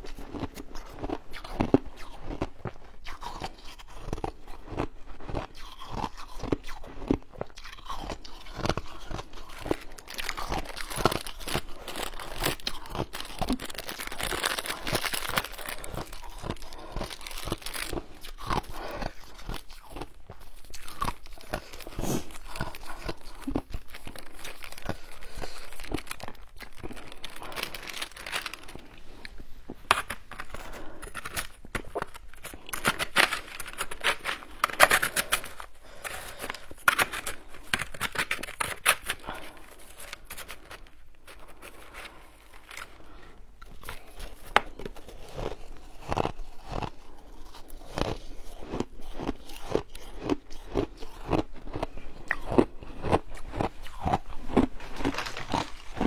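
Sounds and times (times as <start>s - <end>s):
spoon crunching through shaved ice: 0.0s - 56.0s
plastic packet crinkling: 8.8s - 18.9s, 21.2s - 45.8s.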